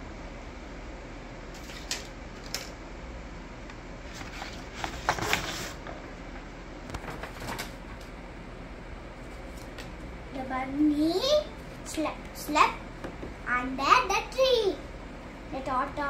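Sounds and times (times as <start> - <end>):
room hiss: 0.0 - 7.0.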